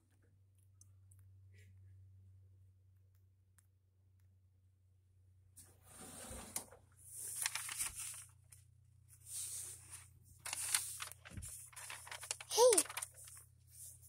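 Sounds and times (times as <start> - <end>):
faint low hum: 0.0 - 14.0
rustling and scraping handling: 5.6 - 14.0.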